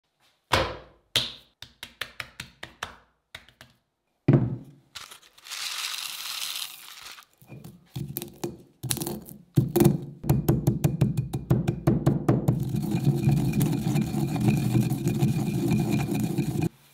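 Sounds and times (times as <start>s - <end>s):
peppercorns rattling into bowl: 5.0s - 7.4s
pestle pounding in stone mortar: 8.0s - 16.7s.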